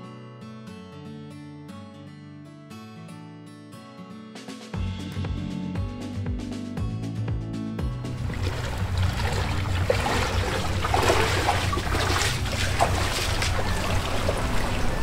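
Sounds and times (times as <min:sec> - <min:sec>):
seawater splashing around legs: 0:08.1 - 0:15.0.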